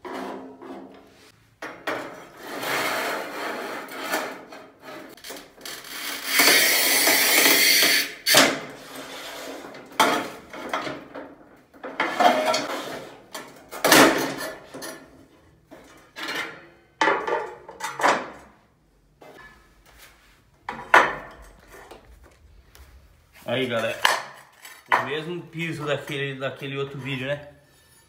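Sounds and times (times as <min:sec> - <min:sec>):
scoring wheel scraping tile: 0:02.2 - 0:08.1.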